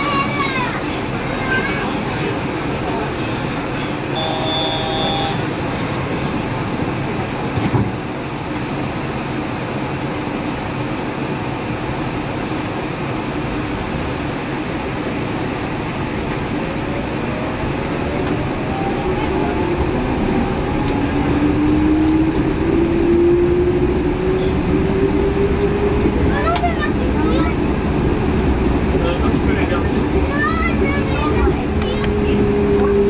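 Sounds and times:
train tyres rumbling: 0.0 - 33.0
train motor whine: 4.1 - 5.6.

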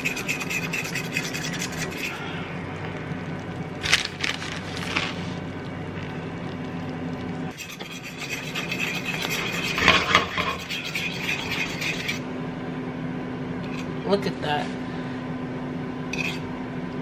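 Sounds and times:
spatula scraping skillet: 0.0 - 2.5, 7.5 - 12.2, 16.1 - 16.5
low steady hum: 0.0 - 17.0.

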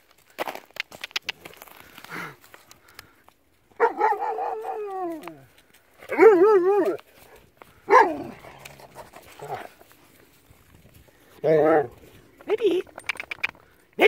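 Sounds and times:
dog whining howls: 3.9 - 5.4.

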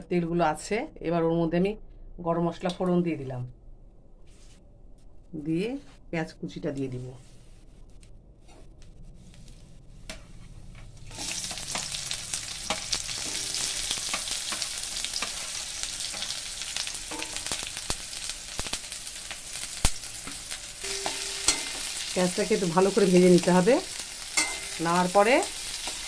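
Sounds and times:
oil crackling and popping: 11.1 - 20.8
onions sizzling in hot oil: 11.1 - 26.0.

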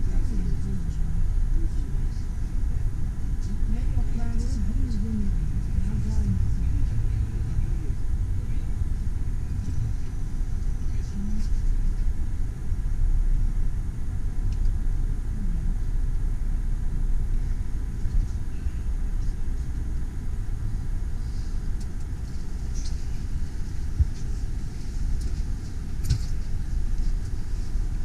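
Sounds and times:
train carriage rumbling on rails: 3.6 - 12.0.

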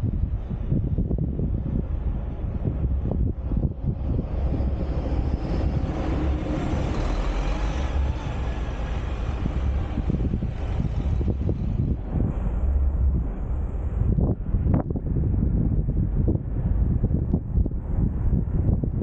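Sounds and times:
wind rumble on microphone: 0.0 - 19.0
coach bus passing: 1.3 - 14.7.

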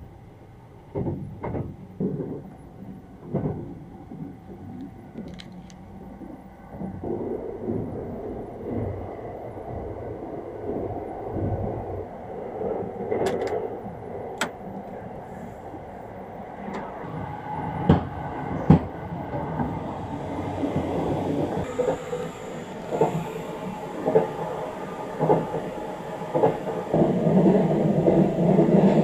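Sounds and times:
train running rumble: 12.5 - 29.0.

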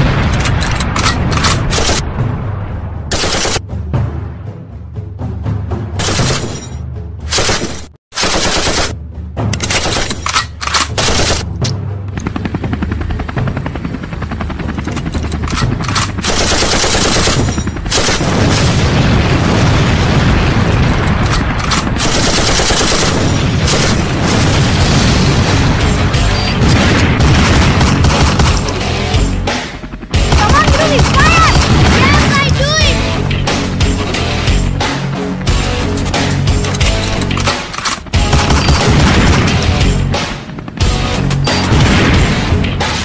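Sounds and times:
action music: 0.0 - 43.0
automatic gunfire: 3.1 - 3.6, 7.3 - 9.0, 9.6 - 11.5, 15.6 - 18.8, 21.2 - 24.8, 26.7 - 28.8, 30.3 - 32.5, 38.2 - 39.8
explosions: 18.2 - 28.5, 30.5 - 32.6, 38.4 - 39.9, 41.5 - 43.0.

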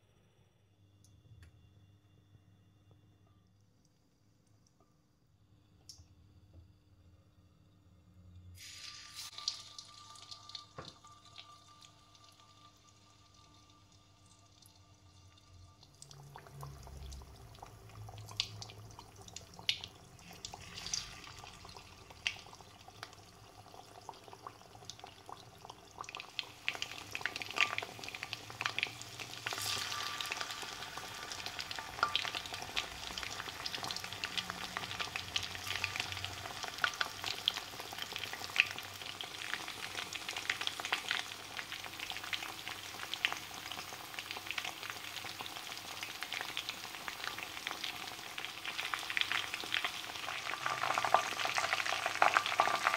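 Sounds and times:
fish deep-frying in oil: 8.6 - 52.9.

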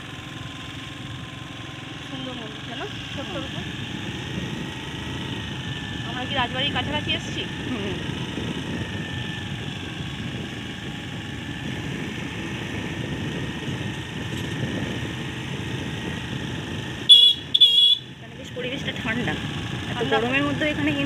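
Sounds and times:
motor scooter engine running: 0.0 - 21.0
tyre and wind noise: 3.7 - 18.2
high-pitched horn beeps: 17.1 - 18.1.

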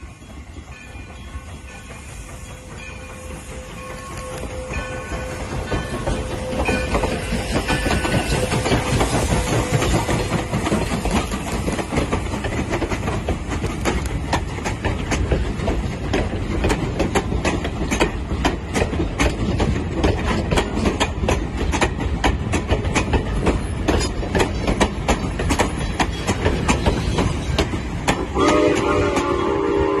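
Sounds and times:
train coaches rumbling past: 0.0 - 30.0
wheels clicking over rail joints: 0.4 - 29.9
steam whistle blowing: 28.2 - 30.0.

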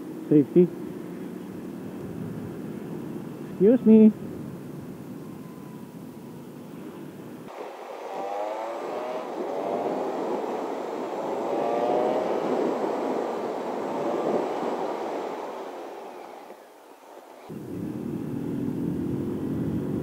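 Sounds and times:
road and wind noise: 0.0 - 20.0
motorcycle engine accelerating: 7.4 - 16.5, 17.4 - 20.0.

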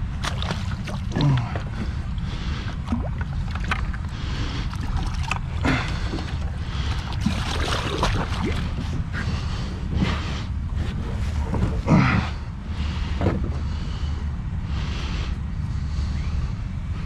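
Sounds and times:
water gurgling: 0.0 - 9.0
steady low rumble: 0.0 - 17.0
water splashing against metal boat: 0.1 - 2.0, 2.6 - 9.2.

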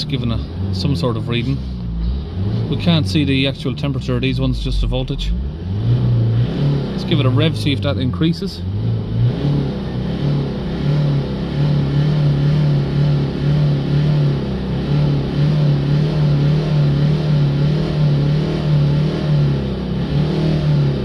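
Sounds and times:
diesel engine at raised revs: 0.0 - 21.0.

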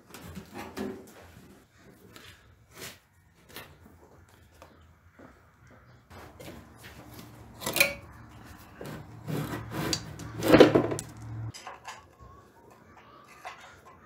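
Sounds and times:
rubbing and scraping: 6.1 - 11.5.

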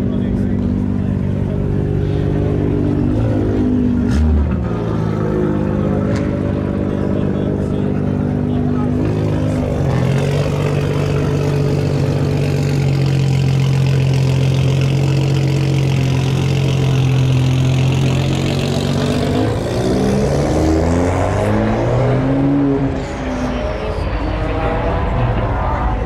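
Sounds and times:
pickup engine running and revving: 0.0 - 26.0.

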